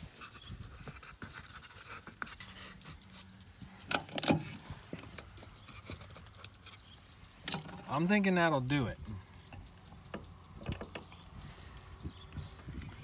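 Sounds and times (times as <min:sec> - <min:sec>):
wood scraping and clicking on wood: 0:00.2 - 0:08.2.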